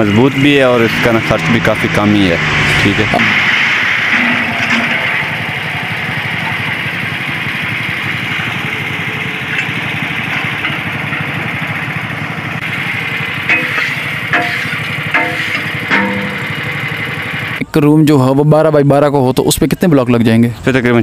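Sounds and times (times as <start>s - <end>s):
small engine running: 0.0s - 17.6s.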